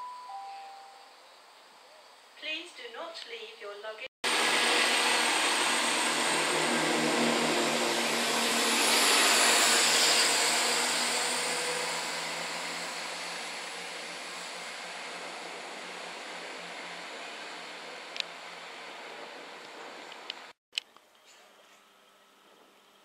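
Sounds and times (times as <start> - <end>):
train wheel and rail noise: 4.3 - 20.6.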